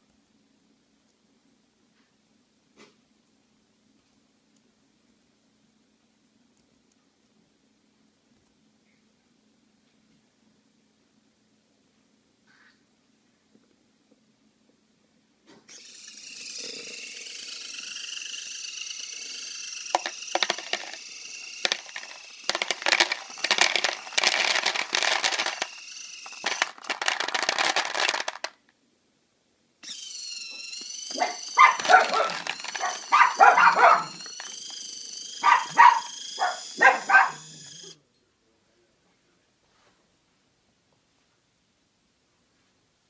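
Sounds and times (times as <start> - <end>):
high motor whine: 15.7 - 27.1, 29.8 - 38.0
kibble clattering into plastic bowl: 20.0 - 21.0, 21.6 - 25.8, 26.4 - 28.6, 31.6 - 33.0.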